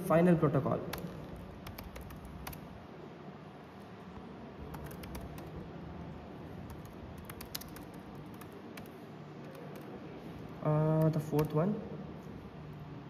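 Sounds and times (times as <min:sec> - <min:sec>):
faint room noise: 0:00.0 - 0:13.0
laptop key clicks: 0:06.7 - 0:09.9.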